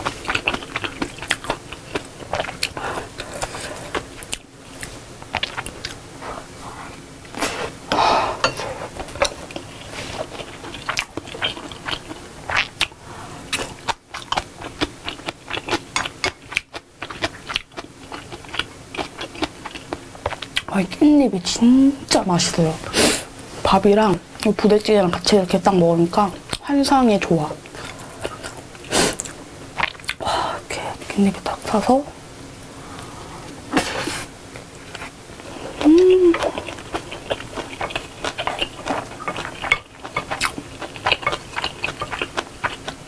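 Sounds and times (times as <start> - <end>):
chewing and mouth smacks: 0.0 - 6.0, 9.0 - 12.9, 13.5 - 20.7, 27.8 - 30.2, 35.8 - 43.0.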